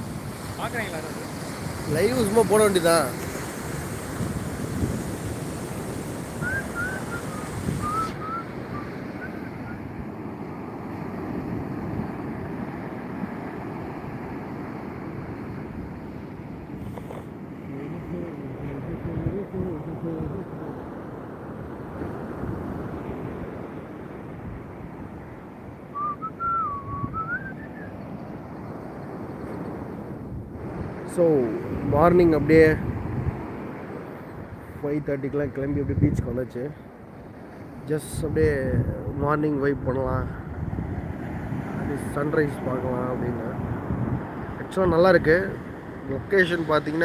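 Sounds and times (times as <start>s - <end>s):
surf washing onto beach: 0.0s - 47.0s
wind buffeting microphone: 0.0s - 47.0s
whistled phrase: 6.4s - 9.8s, 25.9s - 28.0s.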